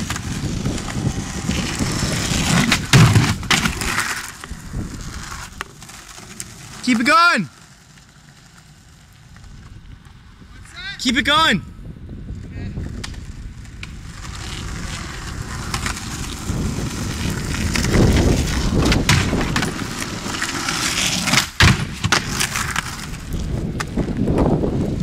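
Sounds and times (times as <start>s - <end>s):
skateboard hitting wooden box: 0.0s - 4.6s, 17.4s - 23.0s
skateboard slap: 0.0s - 4.6s, 12.9s - 24.5s
skateboard wheels rolling on pavement: 0.0s - 25.0s.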